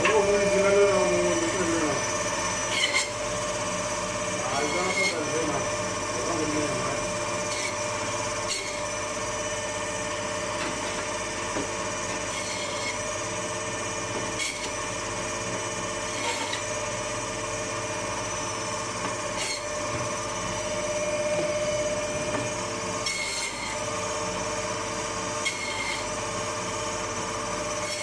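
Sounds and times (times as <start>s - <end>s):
band saw cutting meat and bone: 0.0s - 28.0s
sharp saw scrapes: 2.7s - 3.2s, 4.5s - 5.3s, 7.4s - 7.8s, 8.4s - 8.9s, 12.2s - 13.0s, 14.4s - 14.8s, 16.1s - 16.7s, 19.3s - 19.7s, 23.0s - 23.9s, 25.4s - 26.1s, 27.7s - 28.0s.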